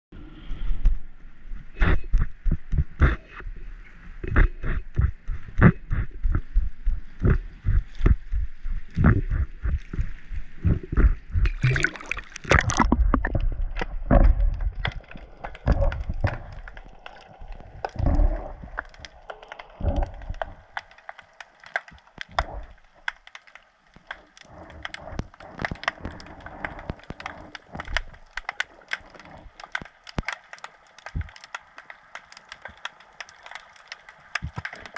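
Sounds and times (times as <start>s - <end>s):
muffled underwater clicks: 1.6s - 3.6s, 4.2s - 34.9s
water sloshing against camera: 1.6s - 34.9s
hissing splash: 11.5s - 13.2s.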